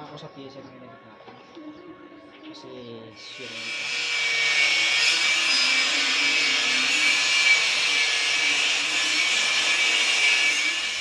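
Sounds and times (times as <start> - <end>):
small electric tool whirring: 3.2 - 11.0.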